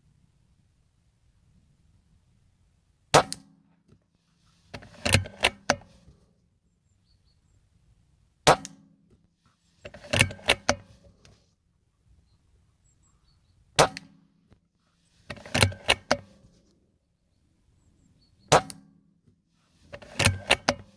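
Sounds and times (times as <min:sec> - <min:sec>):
metallic clicks of rifle action: 0:04.5 - 0:06.2, 0:09.8 - 0:11.4, 0:15.2 - 0:16.8, 0:18.5 - 0:18.9, 0:19.8 - 0:20.9.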